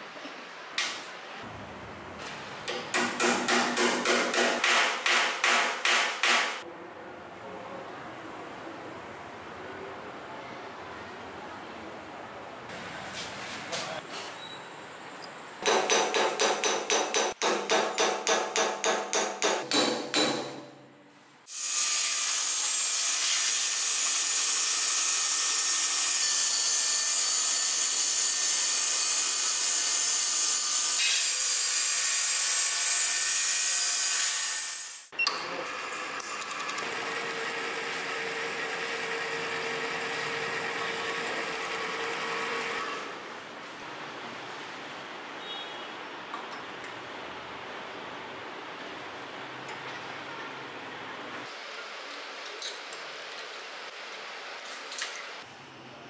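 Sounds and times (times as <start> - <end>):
hammer striking metal: 2.7 - 6.6, 15.6 - 20.9.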